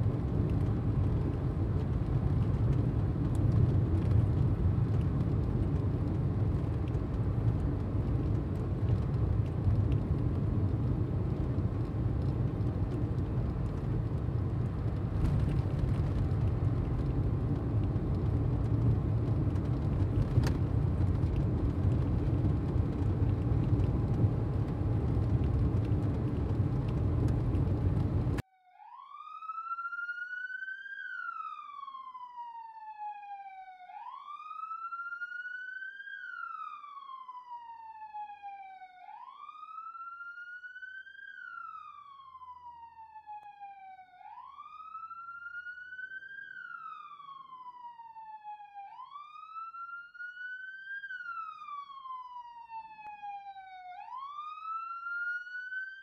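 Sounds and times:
car road noise: 0.0 - 28.4
police siren wailing: 0.1 - 56.0.

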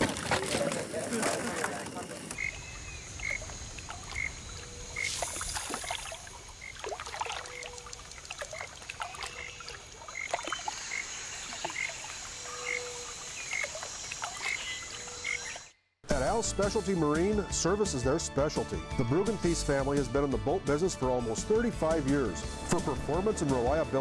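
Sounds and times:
water splashing and lapping: 0.0 - 15.6.

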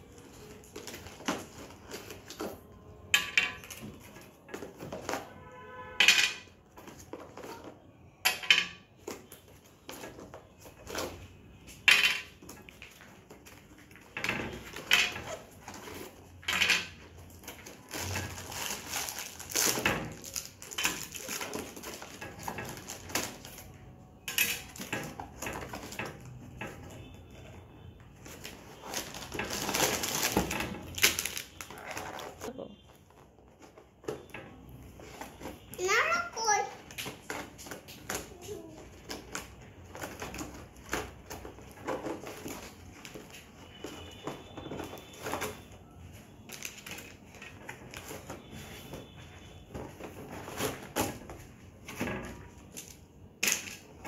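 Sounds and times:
packaging rustling: 0.0 - 2.8, 12.5 - 23.8, 28.2 - 34.1, 37.3 - 53.2
plastic pieces clattering on glass: 6.0 - 6.6, 11.8 - 12.7, 14.0 - 15.3, 16.3 - 23.6, 24.2 - 26.8, 52.0 - 54.0
plastic bag rustling: 12.5 - 23.7, 28.2 - 33.8.

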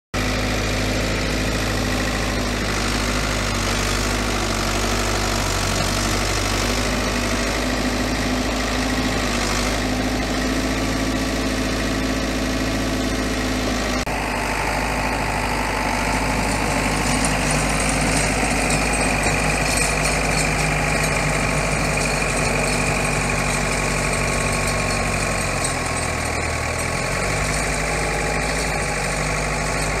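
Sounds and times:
tractor diesel engine running: 0.2 - 30.0.

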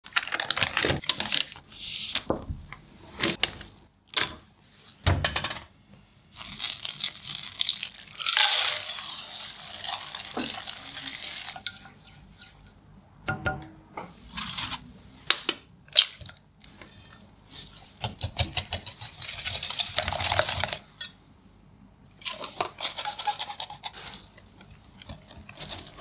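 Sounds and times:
spatula stirring and scraping: 8.5 - 12.8, 22.3 - 26.0.

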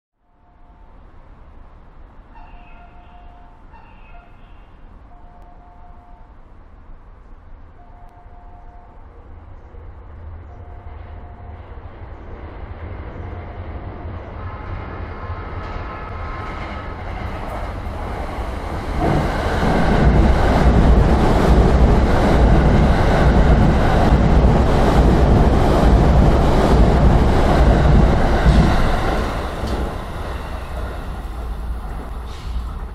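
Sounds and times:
electric train passing at speed: 0.2 - 32.9
train wheels clacking: 16.5 - 32.9.

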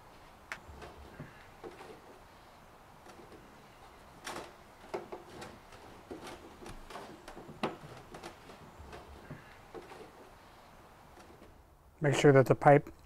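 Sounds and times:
plastic pipe clicks and knocks: 6.1 - 9.1.

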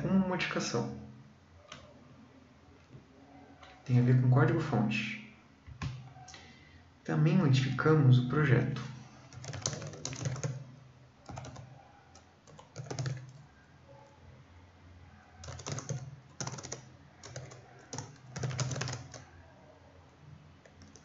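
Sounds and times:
typing on keyboard: 9.3 - 10.7, 11.3 - 13.5, 15.4 - 19.3, 20.6 - 21.0.

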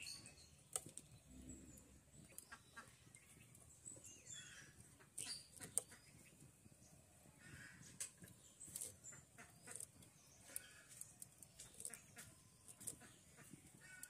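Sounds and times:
hens clucking: 7.3 - 11.0.

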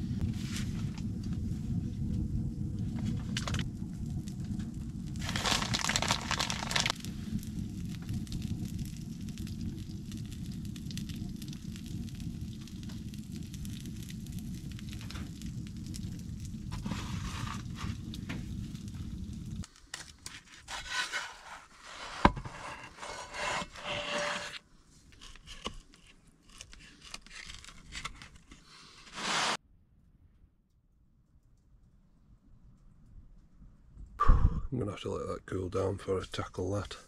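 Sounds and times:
cooking fire rumble: 0.0 - 25.1
scraping and rubbing: 16.7 - 18.2, 20.0 - 29.6.

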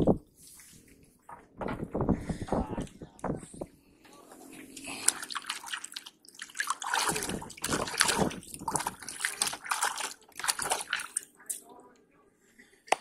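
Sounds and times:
water splashing and dripping: 4.8 - 11.6.

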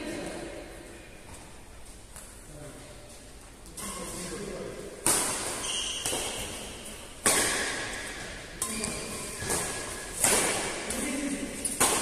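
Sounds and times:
rackets striking shuttlecock: 5.0 - 12.0.

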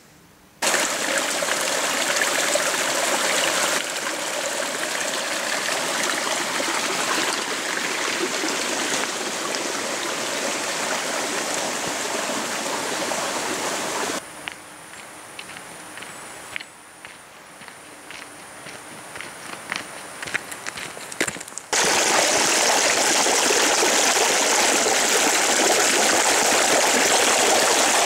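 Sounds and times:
stream trickling over pebbles: 0.6 - 14.2, 20.2 - 28.0.

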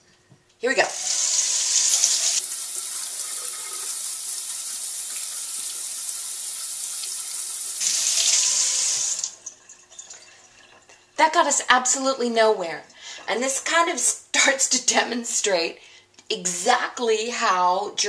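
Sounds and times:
faucet running into steel sink: 0.9 - 11.0.

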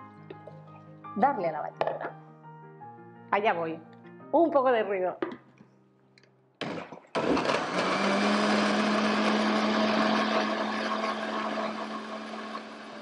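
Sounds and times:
blender motor chopping: 6.6 - 13.0.

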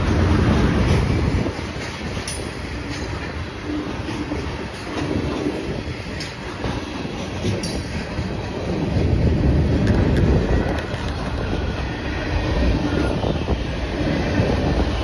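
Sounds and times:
wheels clacking over rail joints: 0.0 - 11.8
steel wheels rumbling on rail: 0.0 - 15.0.

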